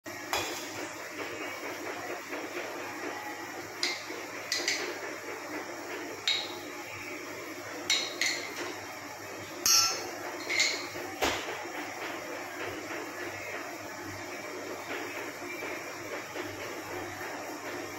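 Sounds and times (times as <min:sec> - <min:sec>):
spoon clinking against glass and metal: 0:09.6 - 0:10.8.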